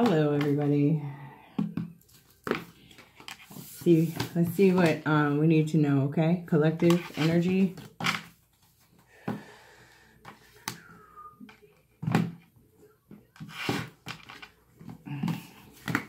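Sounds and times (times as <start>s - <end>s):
cards tapping and knocking: 13.3s - 16.0s.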